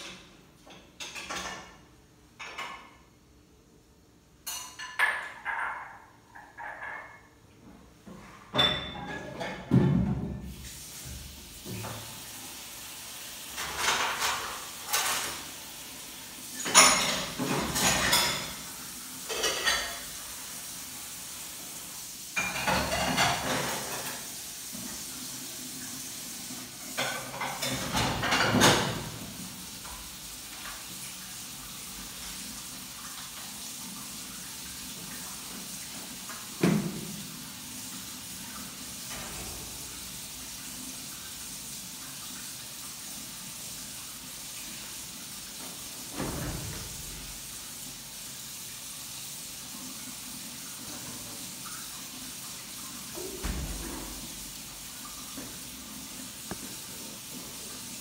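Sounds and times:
dishes and cutlery clattering: 0.0 - 3.1, 4.4 - 7.4, 8.2 - 10.3, 13.6 - 15.5, 16.5 - 20.2, 22.4 - 24.3, 26.8 - 29.3.

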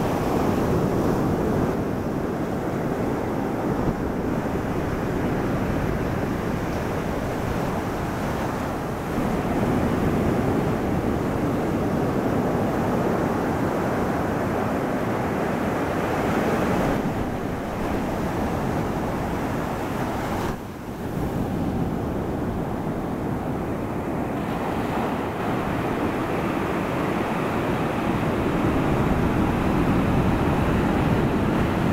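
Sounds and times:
ocean surf breaking on beach: 0.0 - 31.9.

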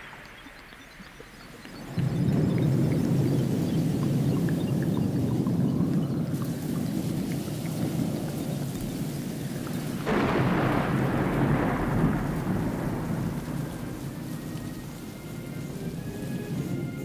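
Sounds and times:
steady rain: 0.0 - 17.0
thunder clap rolling: 0.0 - 17.0.

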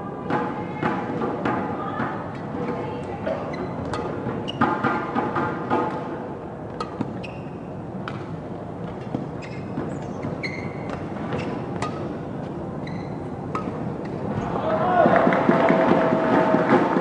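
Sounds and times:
shoes squeaking on court: 2.3 - 5.0, 6.7 - 14.5
rackets striking shuttlecock: 13.4 - 14.3
crowd background: 13.8 - 17.0.

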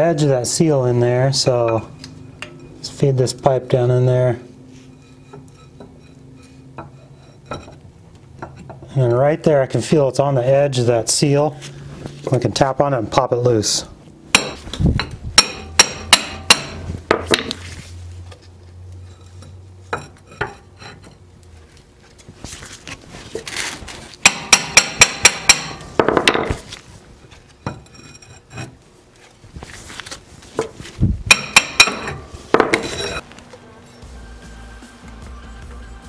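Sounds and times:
hammer striking metal rod: 14.3 - 17.5, 24.2 - 26.6, 31.3 - 33.2.

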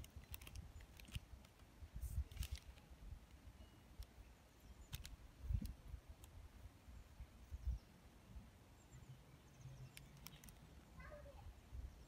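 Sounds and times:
faint clicks: 0.0 - 4.2, 4.8 - 6.4, 9.8 - 10.7.

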